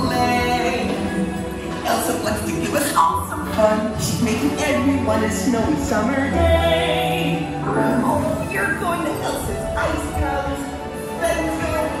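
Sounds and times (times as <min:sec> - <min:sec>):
music with singing voices: 0:00.0 - 0:12.0.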